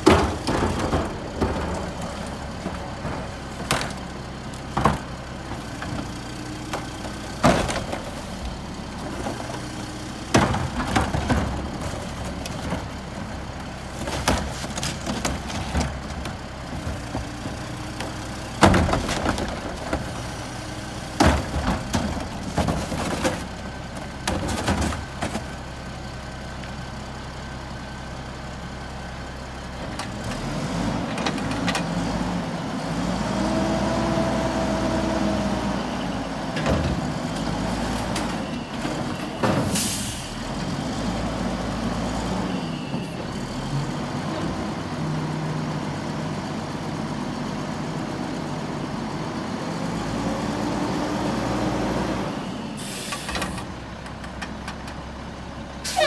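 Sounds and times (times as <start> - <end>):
diesel engine revving: 0.0 - 54.3.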